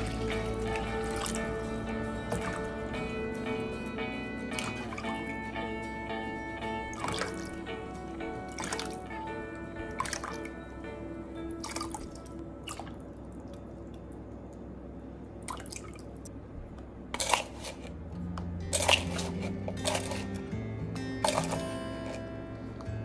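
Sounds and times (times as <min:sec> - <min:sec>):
liquid dripping and splashing: 0:00.0 - 0:03.1, 0:04.5 - 0:05.4, 0:06.8 - 0:10.6, 0:11.5 - 0:14.8, 0:15.4 - 0:16.3, 0:21.2 - 0:22.3
soft background music: 0:00.0 - 0:14.8, 0:17.2 - 0:23.0.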